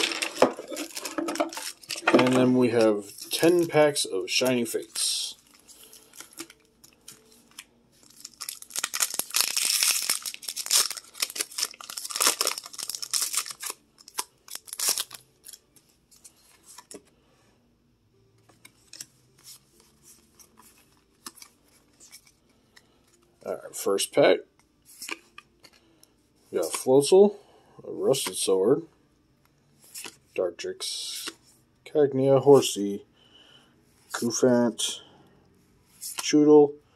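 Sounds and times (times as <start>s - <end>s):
cards rustling and clicking: 0.0s - 17.1s, 18.4s - 23.3s, 24.9s - 25.9s, 26.6s - 26.9s, 31.0s - 31.4s, 36.0s - 36.4s
foil wrapper crinkling and tearing: 5.4s - 15.6s.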